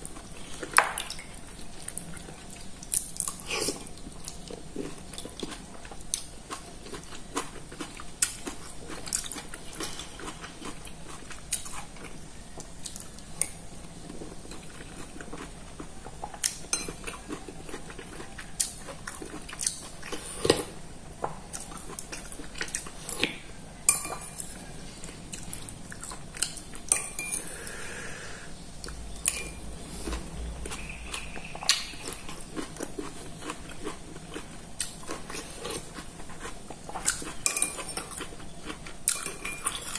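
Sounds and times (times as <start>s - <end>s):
person chewing and sipping: 0.0s - 20.8s, 21.4s - 39.9s
spoon clinking on ceramic bowl: 23.9s - 24.5s, 26.9s - 27.4s.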